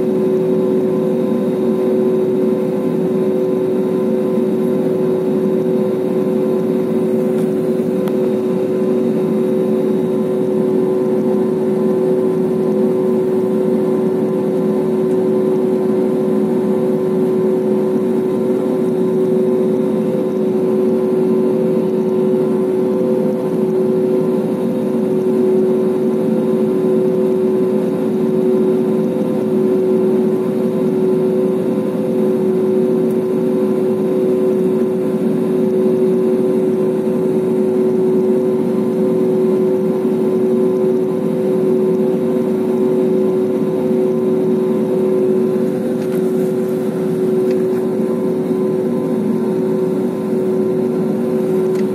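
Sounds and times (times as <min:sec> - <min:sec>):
jet engine rumbling: 0:43.3 - 0:51.9.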